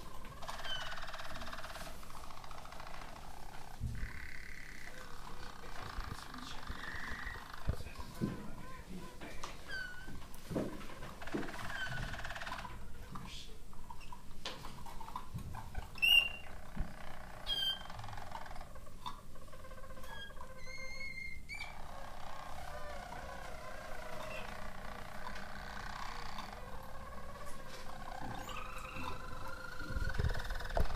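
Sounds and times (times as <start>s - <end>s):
canaries warbling: 0.0s - 30.9s
whistled bird notes: 16.0s - 16.5s.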